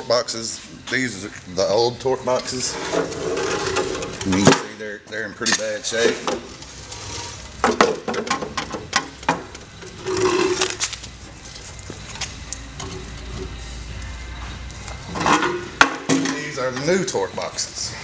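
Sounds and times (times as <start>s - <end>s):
low steady hum: 0.0s - 18.0s
metal scraping on concrete: 2.3s - 4.5s, 5.4s - 7.8s, 9.8s - 11.0s, 15.1s - 16.9s
metal boxes knocking and clanking: 3.0s - 4.8s, 7.6s - 10.7s, 15.1s - 17.0s.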